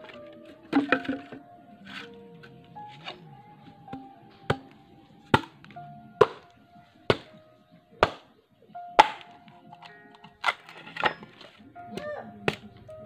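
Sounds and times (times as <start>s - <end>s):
soft background music: 0.0s - 13.0s
machete chopping bamboo: 8.0s - 8.3s, 9.0s - 9.3s.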